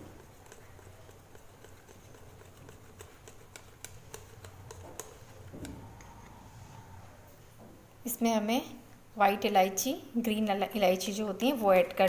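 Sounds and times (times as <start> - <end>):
whisk ticking against glass bowl: 0.0 - 6.1
low hum: 5.5 - 8.0.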